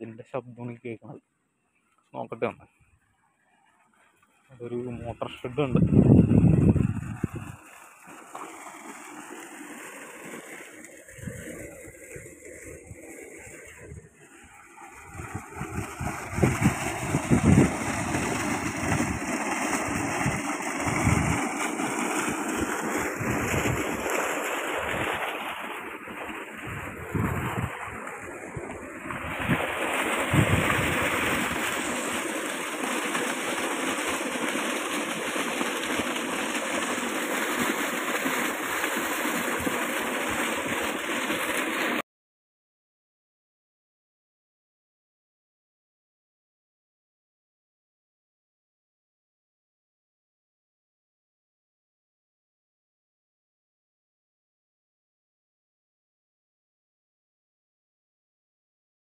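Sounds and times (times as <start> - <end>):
water rushing and splashing: 4.6 - 42.0
wind thumping on microphone: 5.0 - 7.7, 11.1 - 14.2, 14.9 - 21.6, 22.2 - 25.3, 26.0 - 31.9.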